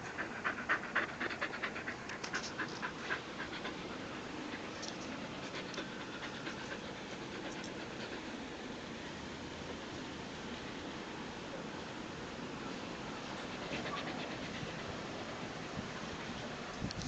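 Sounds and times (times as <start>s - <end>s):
dog panting: 0.0s - 8.8s, 13.1s - 16.7s
faint steady hiss: 0.0s - 17.0s.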